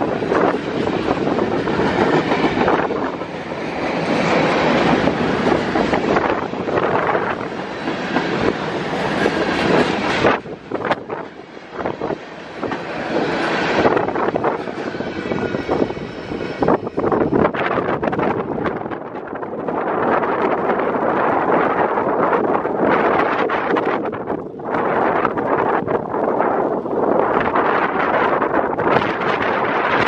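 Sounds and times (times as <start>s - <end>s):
freight train wheels clattering: 0.0s - 21.1s.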